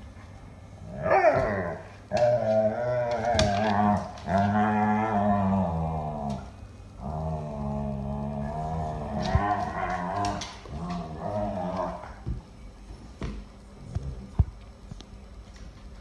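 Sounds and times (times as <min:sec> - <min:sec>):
dogs play-growling: 0:00.8 - 0:12.3.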